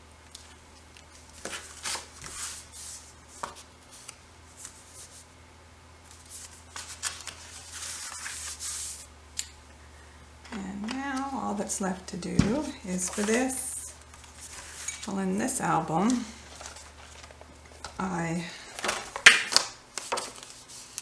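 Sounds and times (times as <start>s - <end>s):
paper rustling: 0.9s - 5.3s, 6.1s - 9.1s, 12.4s - 15.2s, 16.0s - 18.0s, 18.7s - 21.0s.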